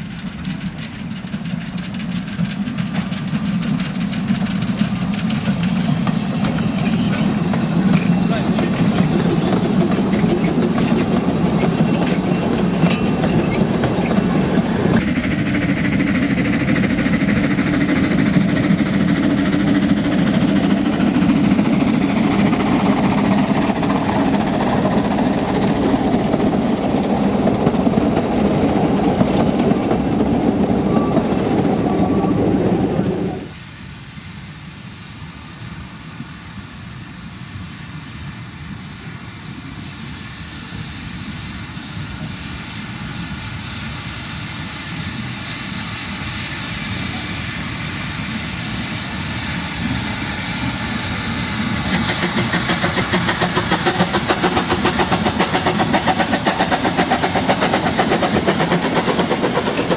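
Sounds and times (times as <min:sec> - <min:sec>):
wheels clattering on rails: 0:00.0 - 0:33.5, 0:51.8 - 0:59.9
steam train passing: 0:00.0 - 0:59.9.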